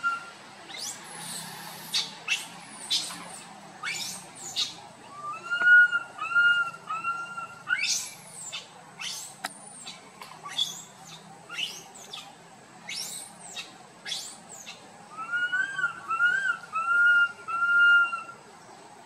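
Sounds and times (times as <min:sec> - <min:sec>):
whistle-like coos: 0:00.0 - 0:03.1, 0:03.8 - 0:08.2, 0:15.1 - 0:18.4
young monkey crying out: 0:00.7 - 0:09.4.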